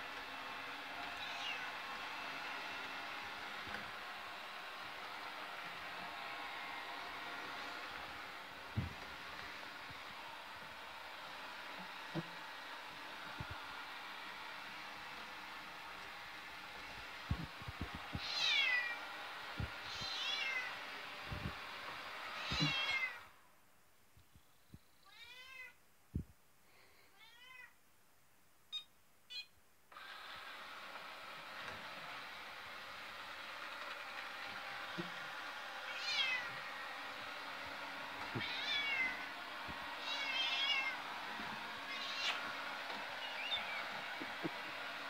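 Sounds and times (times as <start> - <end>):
robot vacuum whirring: 0.0 - 23.0, 29.9 - 45.0
cat meowing: 1.2 - 1.8, 18.2 - 19.0, 19.8 - 20.7, 22.4 - 23.2, 25.0 - 25.8, 27.1 - 27.8, 35.9 - 36.5, 38.3 - 39.2, 40.0 - 41.0, 41.8 - 42.4, 43.2 - 43.8.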